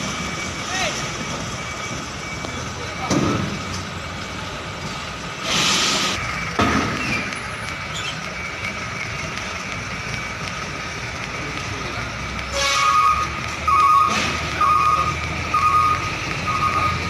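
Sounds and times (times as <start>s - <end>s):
diesel truck engines idling: 0.0s - 17.0s
loud air hiss: 5.4s - 6.2s.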